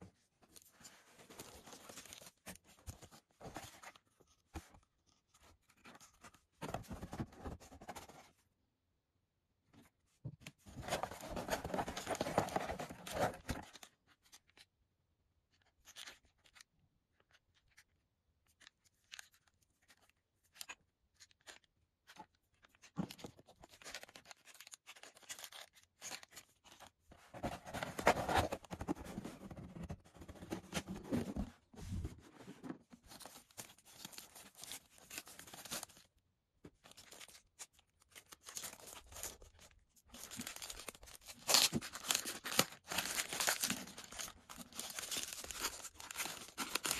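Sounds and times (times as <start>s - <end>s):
paper leaflets rustling: 38.2s - 46.9s.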